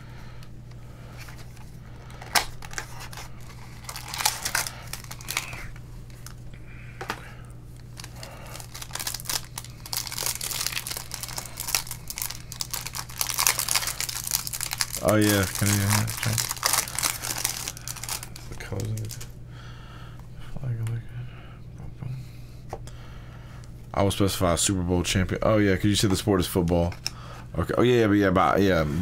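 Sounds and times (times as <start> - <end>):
low steady hum: 0.0 - 29.0
foil wrappers crinkling and tearing: 1.2 - 6.4, 7.8 - 19.3.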